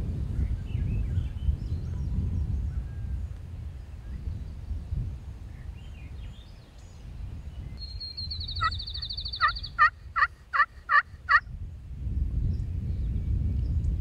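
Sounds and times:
low wind rumble: 0:00.0 - 0:14.0
songbird trilling: 0:05.8 - 0:11.0
turkey call yelps: 0:08.6 - 0:11.4.

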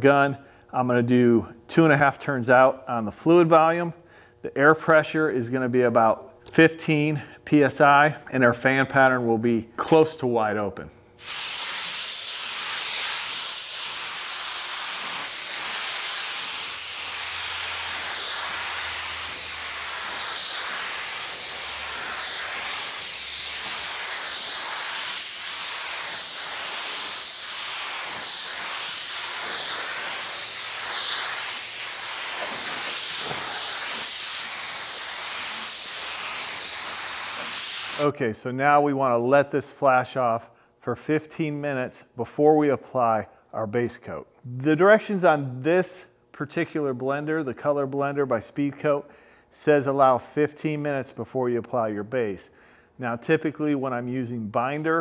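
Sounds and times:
spray gun hissing: 0:11.2 - 0:38.1.

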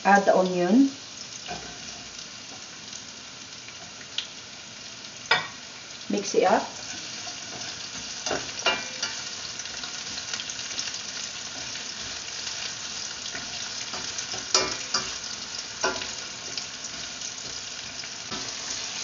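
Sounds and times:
onion sizzling in oil: 0:00.0 - 0:19.0
spoon scraping pan: 0:13.3 - 0:15.2.

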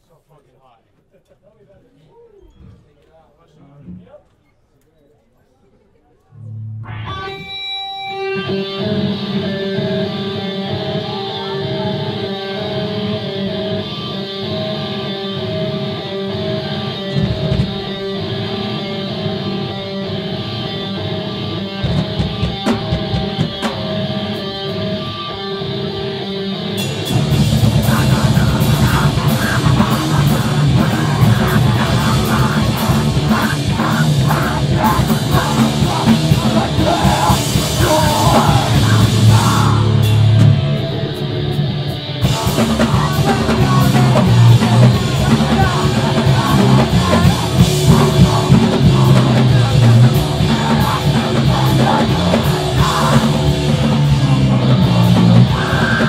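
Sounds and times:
bass: 0:06.3 - 0:07.6, 0:08.4 - 0:56.0
distorted guitars: 0:06.3 - 0:56.0
electric guitar picking: 0:06.4 - 0:56.0
drums: 0:06.8 - 0:56.0
screamed vocals: 0:08.4 - 0:17.5, 0:27.0 - 0:41.2, 0:42.2 - 0:56.0.

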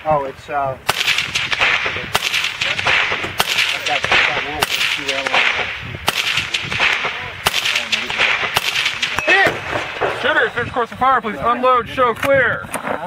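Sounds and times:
rifle shots: 0:00.8 - 0:10.8.

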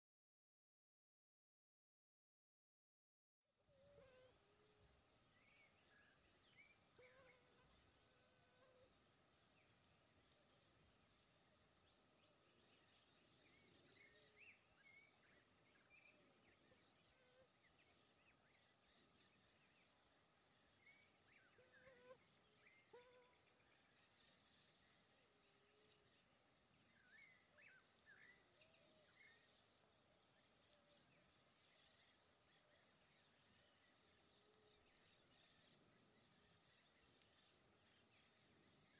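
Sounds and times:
pulsing cricket-like chirp: 0:03.7 - 0:38.9
buzzing insect: 0:21.5 - 0:23.6.

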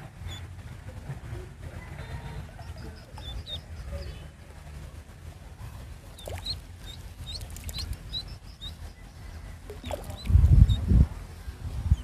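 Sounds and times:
duckling peeping: 0:02.4 - 0:04.3, 0:06.2 - 0:10.9.

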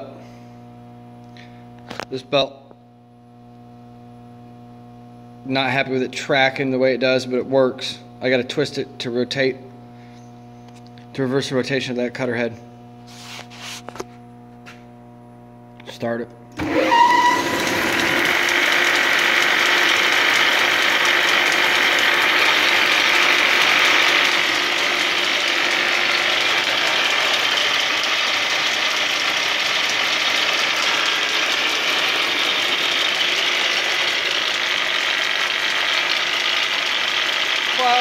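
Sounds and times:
woodworking machine clatter and whir: 0:16.6 - 0:38.0.

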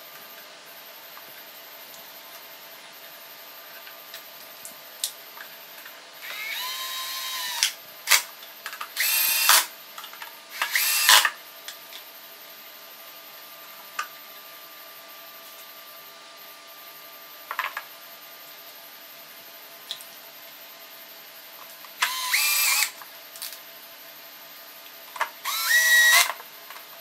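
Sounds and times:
cordless drill driving screws: 0:06.2 - 0:08.2, 0:09.0 - 0:09.7, 0:10.6 - 0:11.3, 0:22.0 - 0:22.9, 0:25.4 - 0:26.4.

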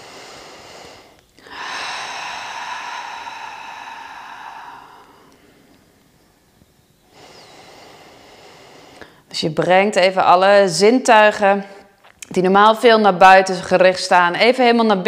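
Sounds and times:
woman breathing deeply: 0:00.0 - 0:09.3.

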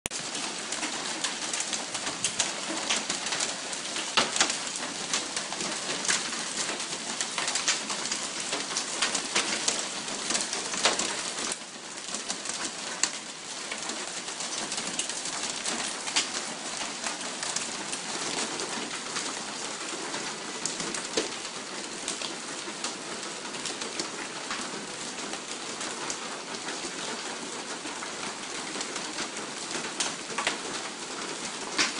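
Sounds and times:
hail and rain on a car: 0:00.1 - 0:31.9.

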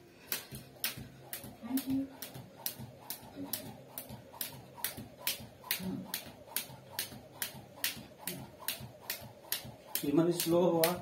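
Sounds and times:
skipping rope slapping concrete: 0:00.2 - 0:11.0.

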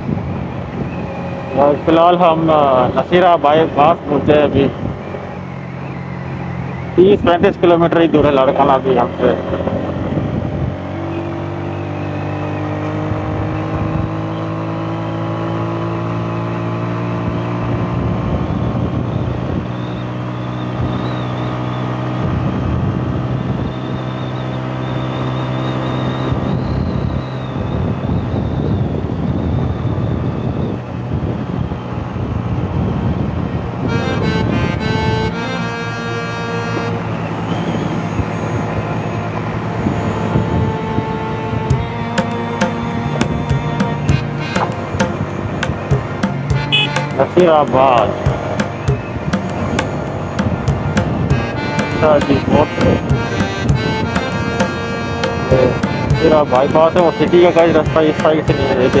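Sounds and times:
wind and road noise: 0:00.0 - 0:59.0
motorcycle engine accelerating: 0:09.1 - 0:23.4, 0:39.2 - 0:59.0
background music: 0:40.6 - 0:59.0.

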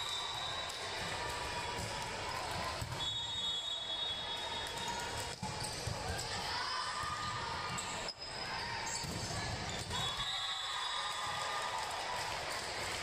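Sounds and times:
murmur of voices in a hall: 0:00.0 - 0:10.2.

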